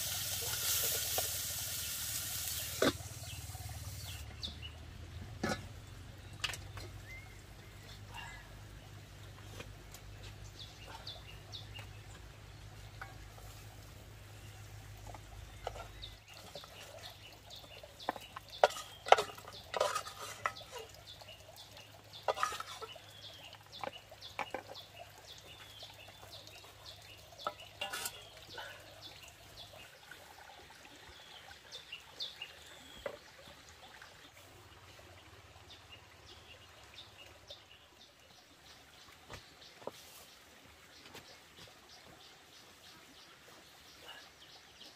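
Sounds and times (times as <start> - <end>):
metal pot and ladle clinking: 18.0 - 20.9, 22.2 - 23.1, 27.4 - 28.4.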